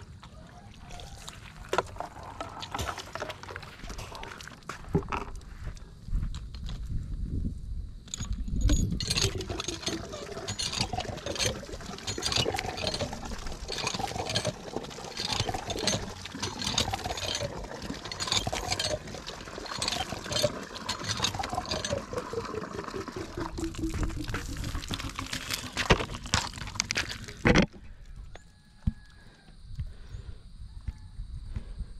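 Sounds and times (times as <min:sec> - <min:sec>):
water pouring and splashing: 0:00.0 - 0:05.3, 0:08.7 - 0:27.6.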